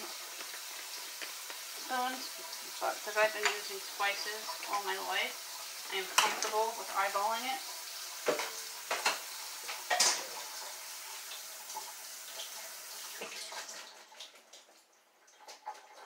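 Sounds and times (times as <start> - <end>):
tap running into metal sink: 8.2 - 10.4.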